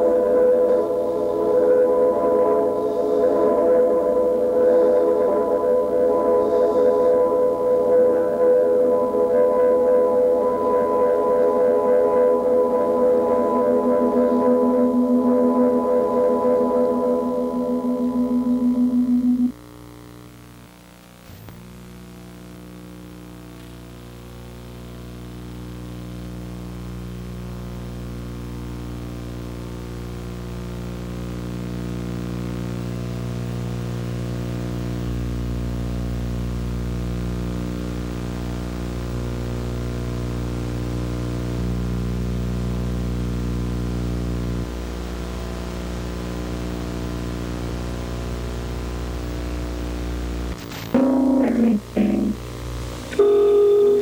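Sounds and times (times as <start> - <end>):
synthesizer drone: 0.0 - 19.6, 50.9 - 54.0
deep hum: 13.0 - 19.5.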